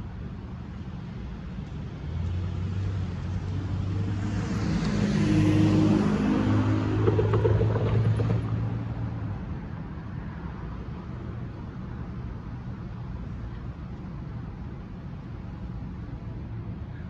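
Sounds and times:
vehicle engine passing: 2.4 - 9.5.

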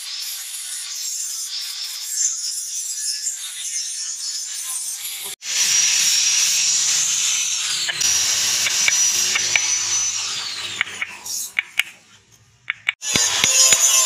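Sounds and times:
high squeal: 5.5 - 11.6
sharp clicks: 10.7 - 12.0, 12.6 - 14.0.

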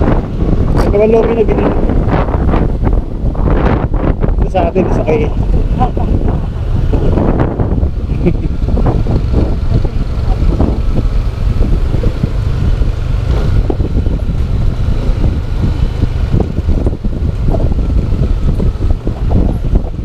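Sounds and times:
motorcycle engine running: 0.0 - 20.0
wind buffeting microphone: 0.0 - 20.0.

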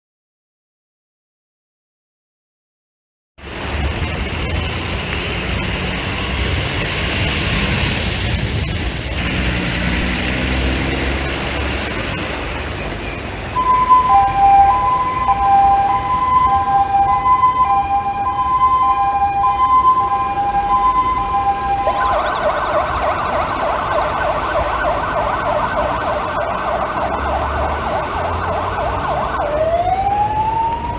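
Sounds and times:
diesel engine pulling away: 3.4 - 30.9
two-tone siren: 13.6 - 30.9.

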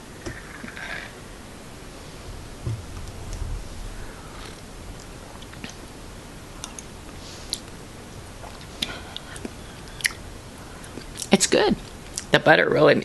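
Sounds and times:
person eating mouth clicks and smacks: 8.5 - 10.2, 12.1 - 12.3.

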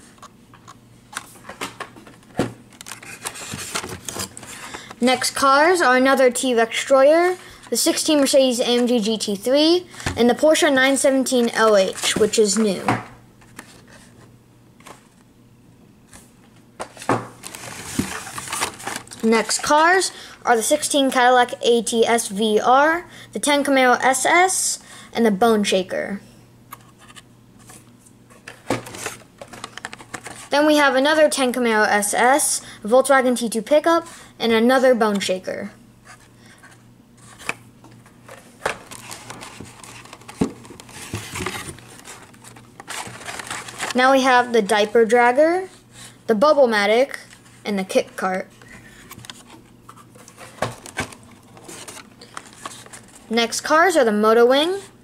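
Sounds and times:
packaging rustling and knocking: 16.8 - 19.2, 28.4 - 30.5, 37.3 - 44.0, 50.4 - 53.1.

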